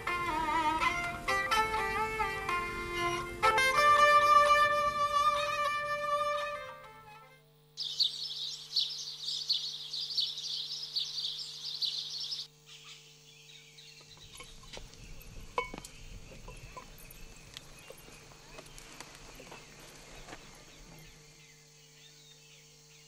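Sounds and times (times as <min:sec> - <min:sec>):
birds chirping: 0:07.8 - 0:23.0.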